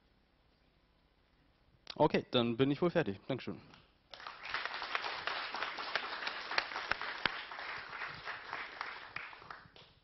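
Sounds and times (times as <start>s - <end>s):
audience applauding: 4.1s - 10.0s.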